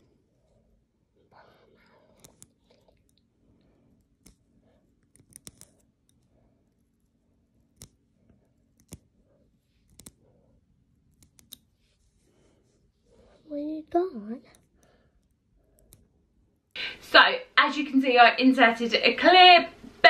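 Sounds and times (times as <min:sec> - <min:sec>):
metal tweezers clicking: 0:04.0 - 0:07.0, 0:07.6 - 0:08.0, 0:08.6 - 0:09.1, 0:09.8 - 0:10.2, 0:11.1 - 0:11.7.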